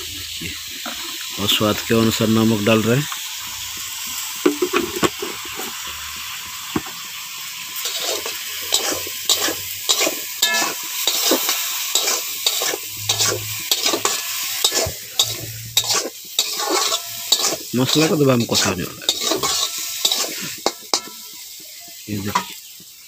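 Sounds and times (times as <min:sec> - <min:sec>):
food sizzling: 0:00.0 - 0:23.0
metal spatula scraping pan: 0:07.8 - 0:21.3.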